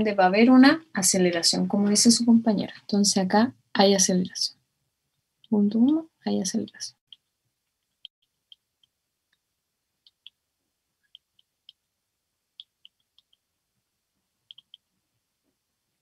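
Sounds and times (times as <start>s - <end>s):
stylus tapping on tablet: 6.6s - 10.4s, 11.0s - 11.9s, 12.6s - 13.5s, 14.5s - 14.9s.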